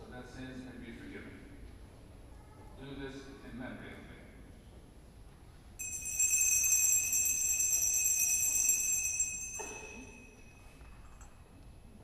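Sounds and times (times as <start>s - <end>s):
altar bells ringing: 5.8s - 10.9s.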